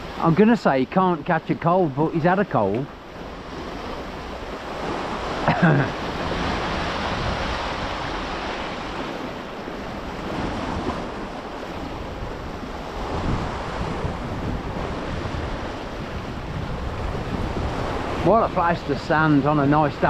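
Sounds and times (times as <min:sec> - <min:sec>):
sea waves washing against rocks: 0:00.0 - 0:20.0
wind on microphone: 0:02.2 - 0:20.0.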